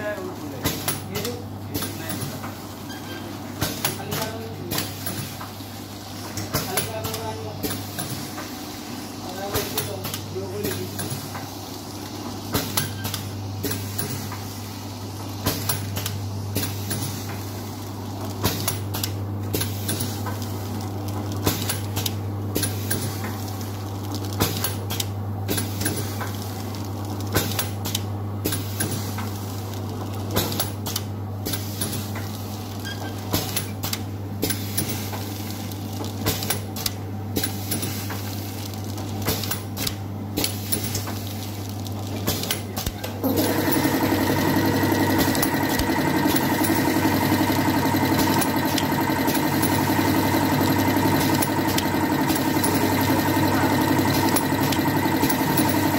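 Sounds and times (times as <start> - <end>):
machine low hum: 43.2 - 55.9.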